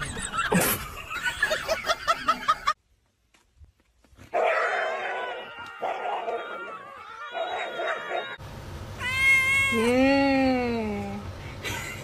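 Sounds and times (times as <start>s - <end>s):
cat yowling: 4.5s - 8.4s, 9.0s - 10.0s.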